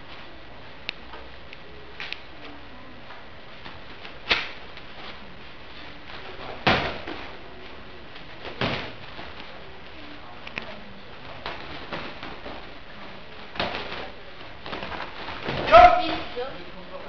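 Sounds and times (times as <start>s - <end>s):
sparring contact thuds: 6.1s - 7.4s, 8.4s - 9.6s, 11.4s - 16.0s.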